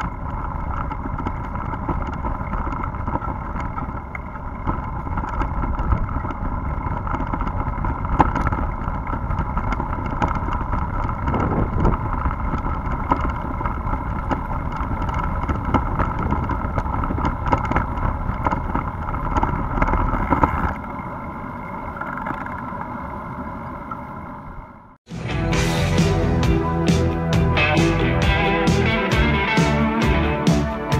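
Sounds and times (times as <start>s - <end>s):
bicycle rattling over cobblestones: 0.0s - 23.7s
wind: 0.0s - 25.1s.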